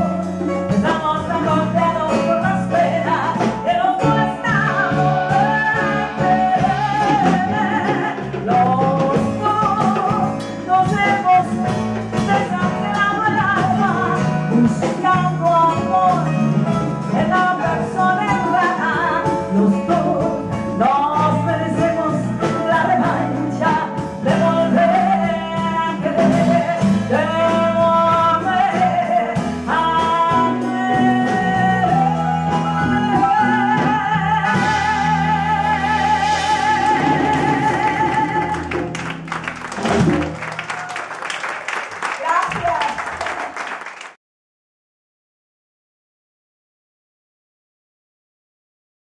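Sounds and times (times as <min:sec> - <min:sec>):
small band playing: 0:00.0 - 0:44.2
woman singing: 0:00.4 - 0:38.9.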